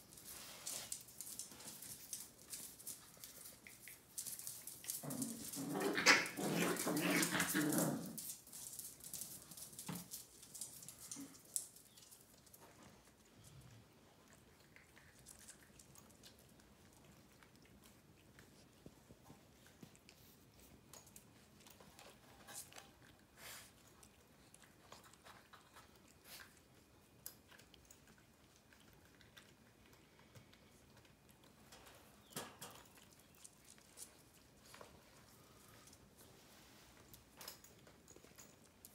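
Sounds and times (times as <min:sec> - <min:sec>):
paws scrabbling on floor: 0:00.0 - 0:23.1.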